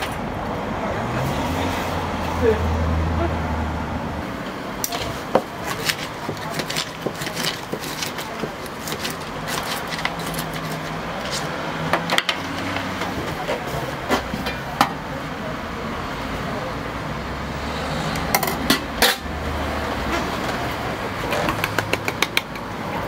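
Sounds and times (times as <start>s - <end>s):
knife chopping on paper tray: 4.9s - 10.7s.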